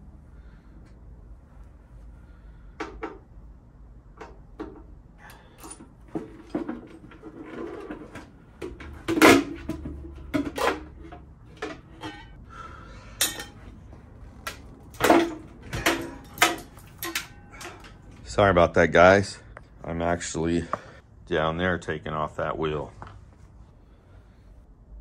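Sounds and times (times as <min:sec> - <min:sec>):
tools clanking on metal parts: 0:04.2 - 0:12.4, 0:13.2 - 0:13.8, 0:14.4 - 0:18.3.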